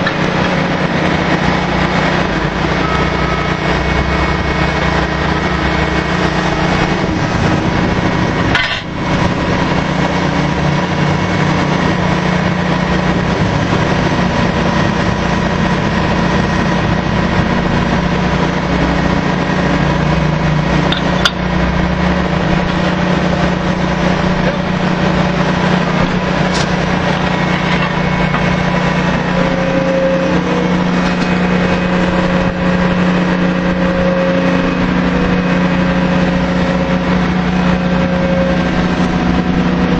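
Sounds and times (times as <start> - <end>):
drilling rig engine drone: 0.0 - 39.9.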